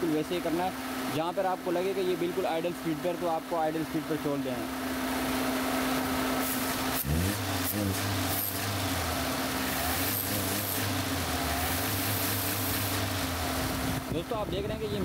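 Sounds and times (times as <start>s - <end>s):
man talking: 0.0s - 4.8s, 14.1s - 15.0s
car engine idling and revving: 0.0s - 15.0s.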